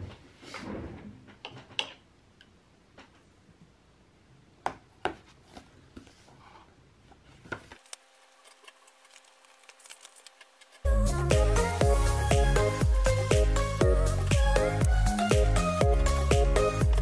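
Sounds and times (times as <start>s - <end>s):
notebook pages turning: 7.8s - 10.8s.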